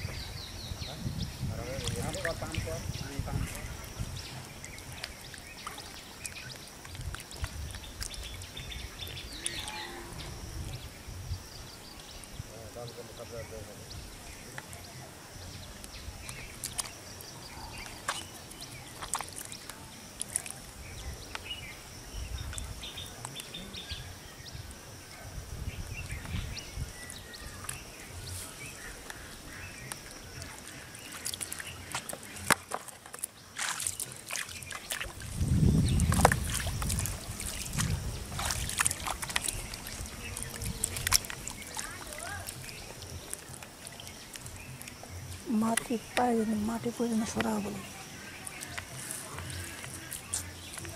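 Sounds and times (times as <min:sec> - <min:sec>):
water sloshing: 0:01.6 - 0:09.6, 0:14.1 - 0:21.4, 0:27.0 - 0:50.9
small water splashes: 0:01.6 - 0:09.7, 0:14.2 - 0:21.5, 0:26.3 - 0:50.9
hands squelching in wet mud: 0:01.7 - 0:09.7, 0:15.8 - 0:21.4, 0:27.0 - 0:50.9.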